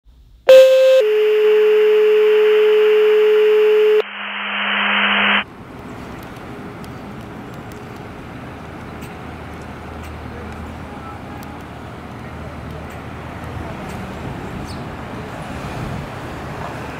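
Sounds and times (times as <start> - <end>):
synthesized tone over noise wash: 0.5 - 5.5
rising whoosh: 4.0 - 5.4
outdoor street ambience: 4.0 - 16.9
low engine rumble: 4.6 - 16.9.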